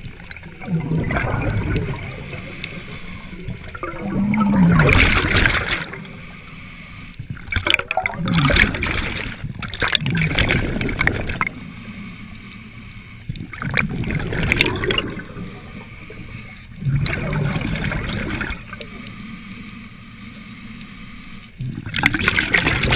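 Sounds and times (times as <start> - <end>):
exhaled bubbles rushing: 0.0 - 6.2, 7.3 - 11.6, 13.4 - 18.8, 21.6 - 22.9
regulator hissing inhalations: 2.1 - 3.5, 6.0 - 7.2.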